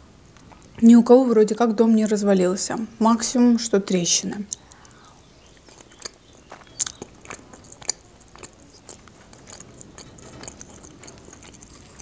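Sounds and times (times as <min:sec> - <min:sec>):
crunchy chewing of salad: 0:00.2 - 0:00.8, 0:04.5 - 0:12.0.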